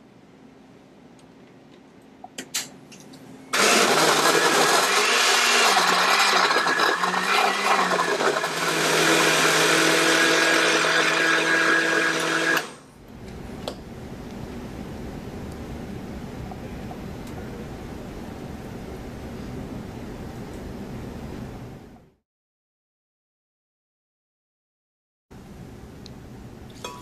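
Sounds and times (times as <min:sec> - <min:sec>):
blender motor running: 0:03.6 - 0:12.8.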